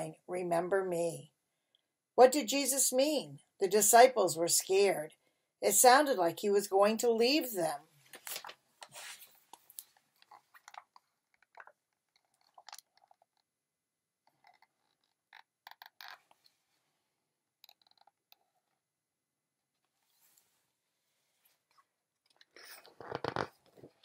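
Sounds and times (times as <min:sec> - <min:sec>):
book being handled: 0:08.1 - 0:10.8.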